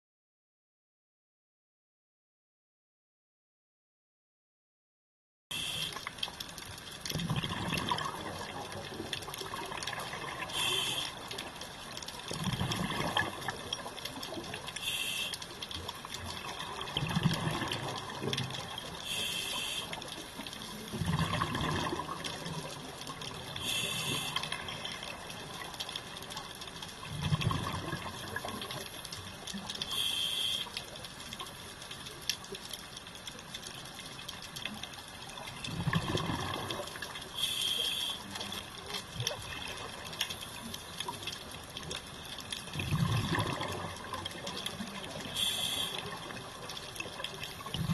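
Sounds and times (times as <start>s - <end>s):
regulator inhale hiss: 5.5s - 6.0s, 10.5s - 11.2s, 14.8s - 15.5s, 19.0s - 20.0s, 23.6s - 24.5s, 29.9s - 30.8s, 37.4s - 38.4s, 45.3s - 46.1s
exhaled bubbles rushing: 7.1s - 11.2s, 12.2s - 14.7s, 16.1s - 19.7s, 20.8s - 25.8s, 27.0s - 28.9s, 35.4s - 37.3s, 42.6s - 47.9s.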